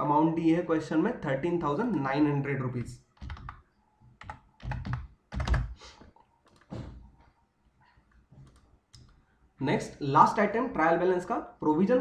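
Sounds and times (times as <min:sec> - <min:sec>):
computer keyboard keystrokes: 0:02.8 - 0:03.6, 0:04.2 - 0:05.8.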